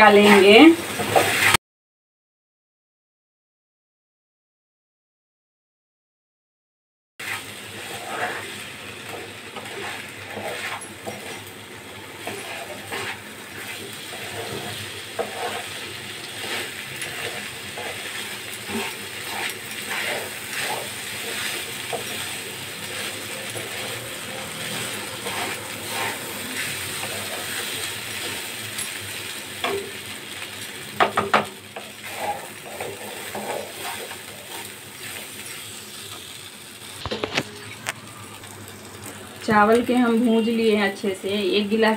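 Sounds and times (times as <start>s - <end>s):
metal spatula scraping rice: 7.2s - 11.5s, 12.2s - 28.6s, 31.8s - 35.7s.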